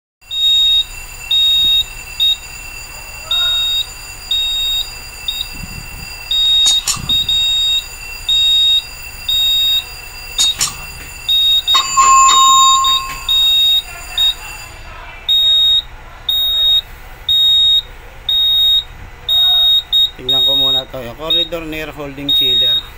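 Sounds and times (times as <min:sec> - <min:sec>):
alarm panel buzzer beeping: 0:11.4 - 0:13.6
brief lower beep: 0:11.8 - 0:13.7.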